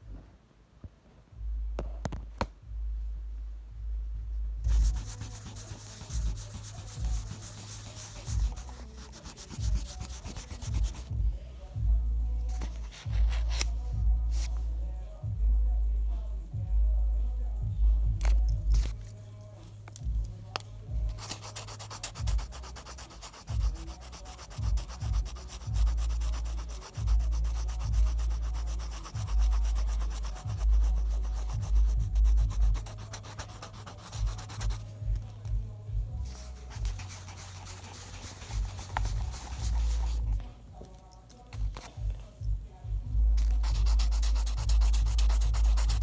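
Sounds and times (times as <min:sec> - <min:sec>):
eraser scrubbing on paper: 0:04.7 - 0:11.1, 0:21.2 - 0:34.8, 0:36.7 - 0:40.2, 0:43.5 - 0:46.0.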